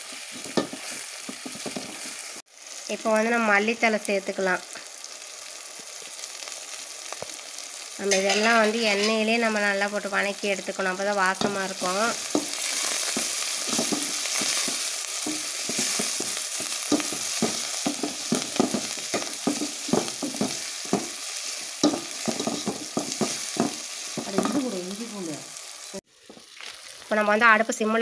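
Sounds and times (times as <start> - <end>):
vegetables sizzling in hot oil: 0.0 - 28.0
wooden spatula scraping a pot: 12.2 - 24.7.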